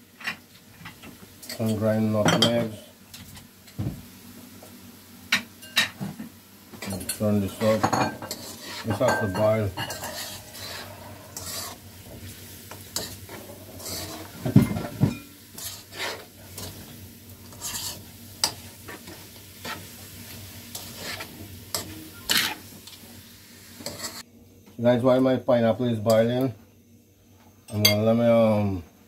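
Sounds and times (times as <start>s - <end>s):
spoon stirring and scraping pot: 6.9s - 11.8s, 12.7s - 22.7s, 23.8s - 24.2s.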